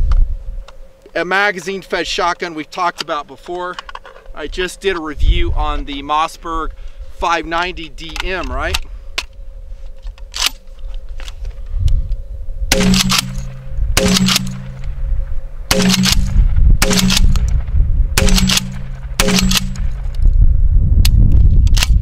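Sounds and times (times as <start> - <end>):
shotgun shots: 12.7 - 14.9, 15.7 - 20.1.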